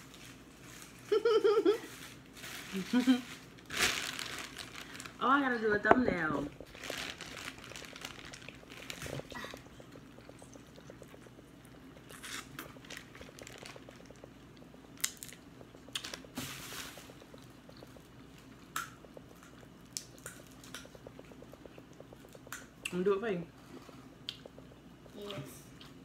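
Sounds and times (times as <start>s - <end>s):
plastic bag crinkling: 1.7s - 5.4s, 6.5s - 10.7s, 12.1s - 14.4s
chewing: 6.5s - 23.0s, 23.6s - 26.0s.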